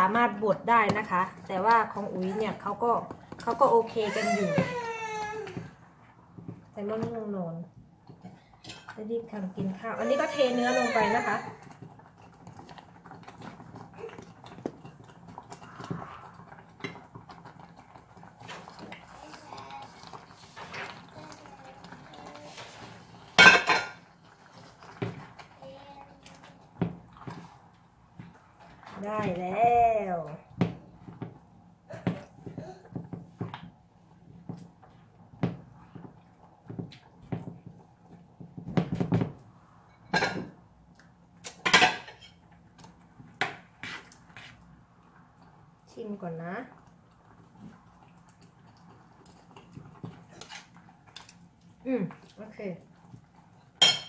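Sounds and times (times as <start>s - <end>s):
spatula stirring thick sauce: 8.1s - 29.6s, 42.1s - 53.8s
spatula scraping food off plate: 43.8s - 44.6s.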